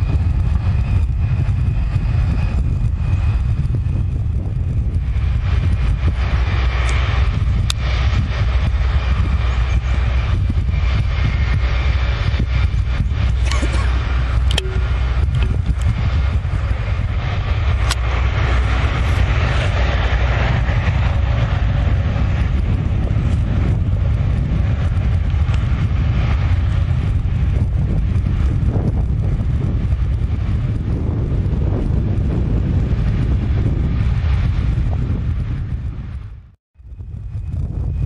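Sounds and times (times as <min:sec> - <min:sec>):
jet engines at taxi power: 0:00.0 - 0:38.0
wind buffeting microphone: 0:00.0 - 0:38.0.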